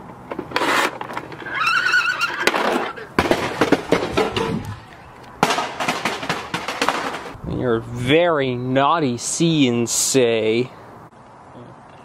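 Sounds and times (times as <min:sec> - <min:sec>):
toy horse whinny: 0:01.4 - 0:03.1
plastic toy clattering on roof tiles: 0:02.3 - 0:04.6, 0:05.4 - 0:07.4.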